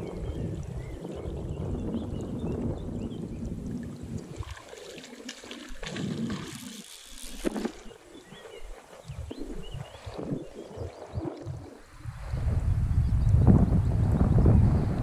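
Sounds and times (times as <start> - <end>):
wind rumble on microphone: 0.0 - 4.8, 7.8 - 15.0
fish thrashing in water: 3.8 - 11.6.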